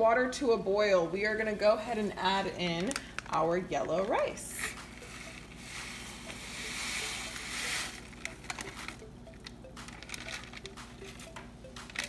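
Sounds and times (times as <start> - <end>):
rice pouring hiss: 5.6 - 8.1
clicks and pops: 8.0 - 12.0.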